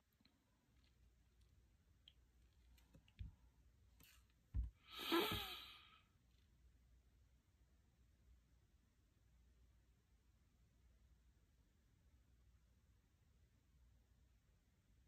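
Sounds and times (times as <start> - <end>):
woman sighing: 4.8 - 6.0.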